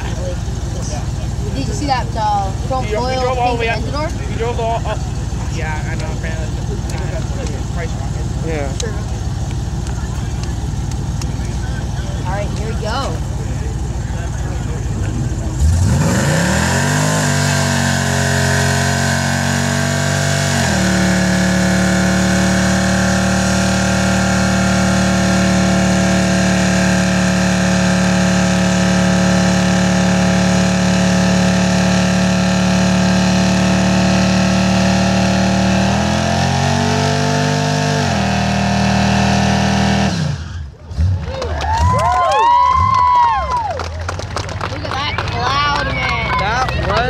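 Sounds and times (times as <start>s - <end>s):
car engine revving hard: 11.8s - 43.3s.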